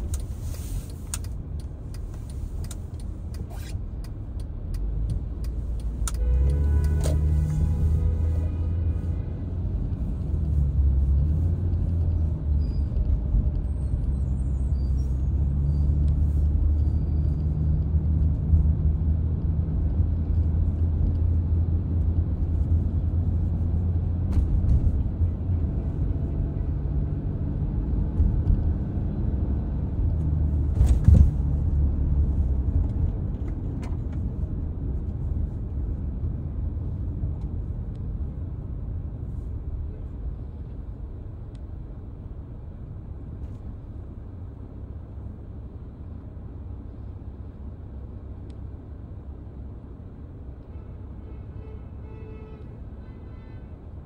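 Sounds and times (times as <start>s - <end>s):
car driving on wet pavement: 3.9s - 36.0s.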